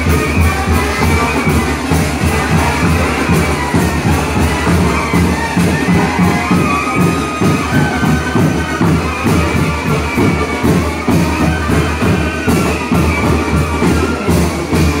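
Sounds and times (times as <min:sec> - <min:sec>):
brass band playing dance music: 0:00.0 - 0:15.0.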